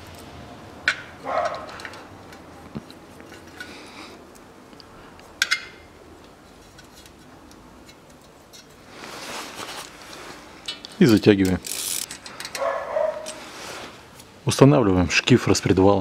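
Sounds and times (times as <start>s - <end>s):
soft rustle: 8.2s - 11.1s, 13.1s - 14.3s.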